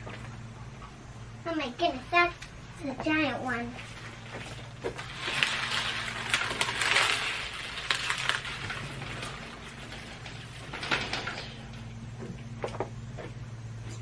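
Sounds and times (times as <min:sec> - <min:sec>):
low hum: 0:00.0 - 0:14.0
onion skins rustling and crackling: 0:03.8 - 0:11.8.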